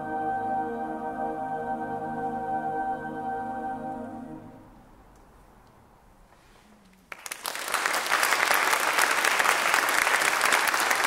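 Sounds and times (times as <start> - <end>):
audience applause: 7.1 - 11.0.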